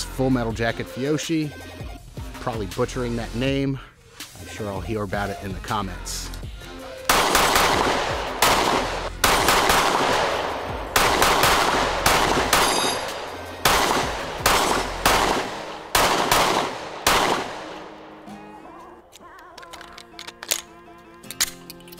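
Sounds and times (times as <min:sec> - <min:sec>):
pistol shots with echo: 0:07.1 - 0:18.2.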